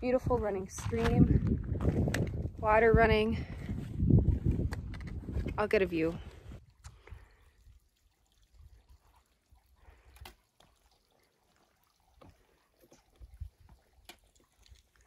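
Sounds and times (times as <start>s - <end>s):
footsteps on sandstone: 0.2s - 2.2s.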